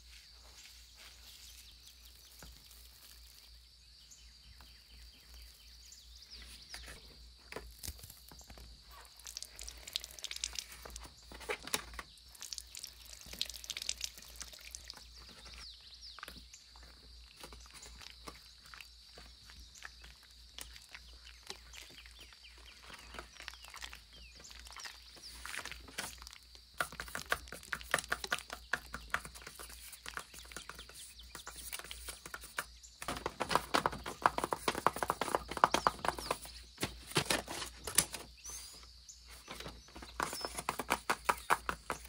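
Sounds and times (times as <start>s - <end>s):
fingertips tapping on paper: 26.8s - 36.5s
sticker sheets rustling: 26.8s - 42.0s.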